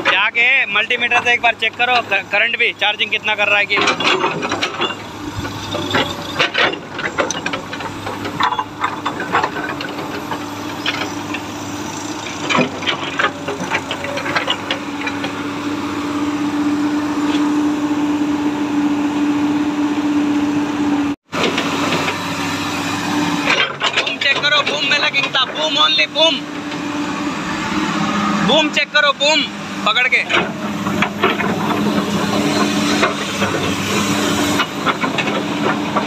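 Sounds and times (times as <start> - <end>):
excavator diesel engine running: 0.0 - 36.0
clanks and rattles: 3.3 - 15.5, 23.4 - 26.8, 30.0 - 36.0.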